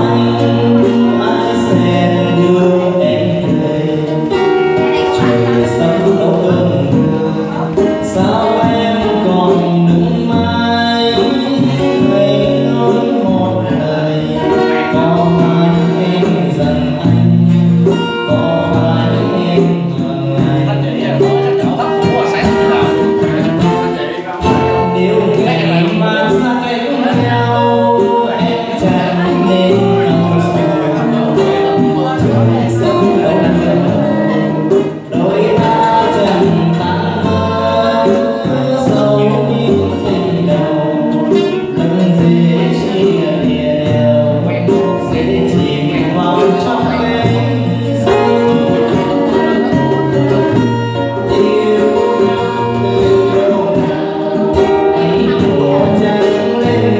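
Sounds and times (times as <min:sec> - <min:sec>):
man singing into microphone: 0:00.0 - 0:56.9
strummed acoustic guitars: 0:00.0 - 0:56.9.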